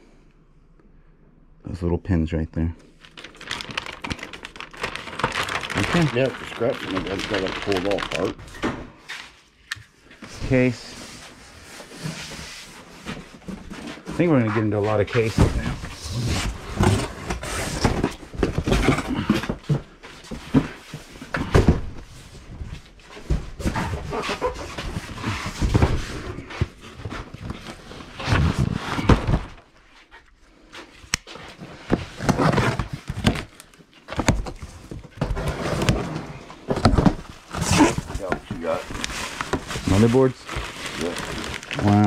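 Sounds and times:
cardboard boxes being shifted: 10.2 - 29.7, 30.8 - 42.0.

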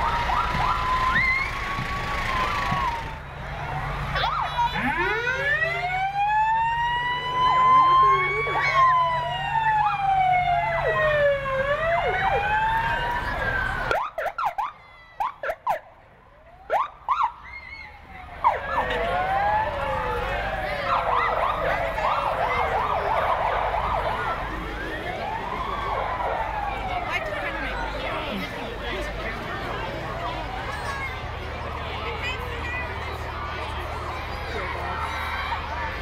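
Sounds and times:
siren yelp: 0.0 - 3.1, 4.1 - 15.8, 16.5 - 28.0
emergency sirens wailing: 0.0 - 36.0.

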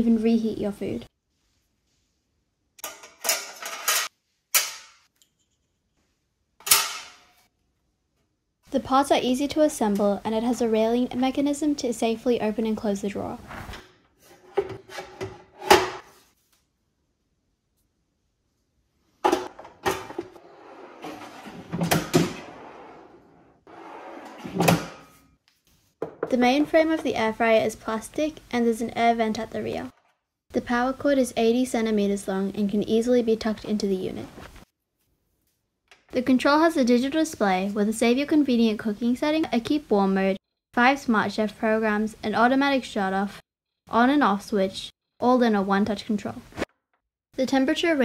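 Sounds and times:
sharp metal clanks: 6.6 - 7.4
drawer sliding on rails: 19.4 - 25.1.

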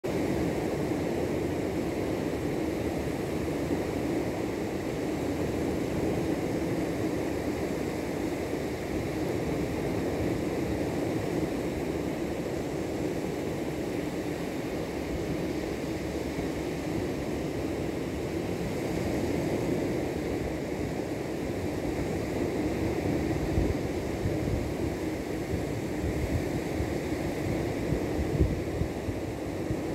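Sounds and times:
wind buffeting microphone: 22.9 - 29.9.

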